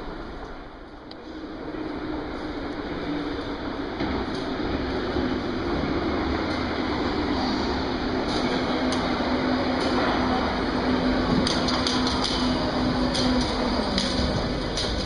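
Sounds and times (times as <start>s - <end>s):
train pulling in: 0.0s - 15.0s
train whine: 0.0s - 15.0s
sharp clicks and clatter: 11.3s - 15.0s.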